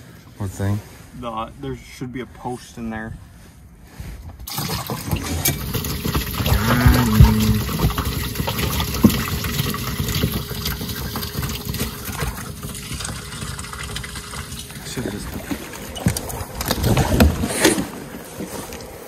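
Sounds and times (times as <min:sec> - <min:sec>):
water trickling and splashing: 0:04.5 - 0:19.0.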